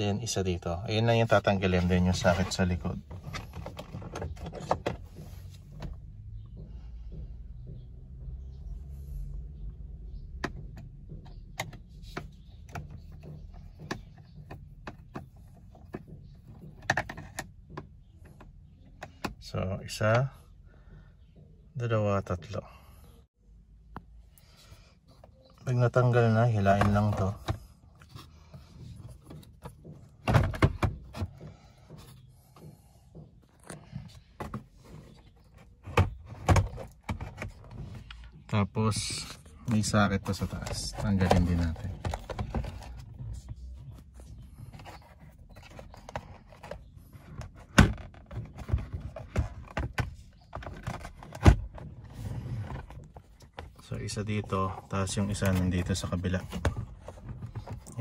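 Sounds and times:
faint plastic scraping: 24.4 - 58.0.

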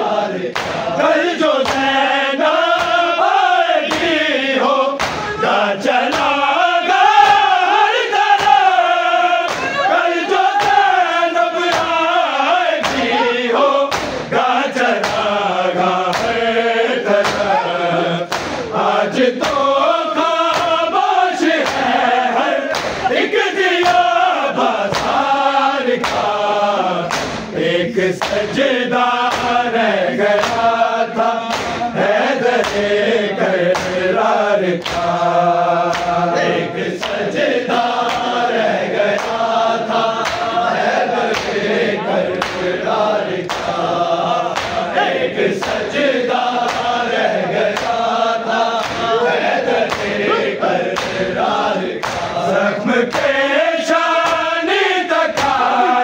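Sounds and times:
men chanting in unison: 0.0 - 56.0
chest-beating strikes: 13.9 - 14.3, 18.3 - 18.8.

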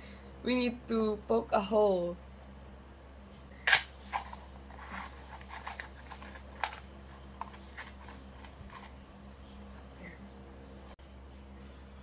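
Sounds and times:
paper crackling and scraping: 4.0 - 9.6.

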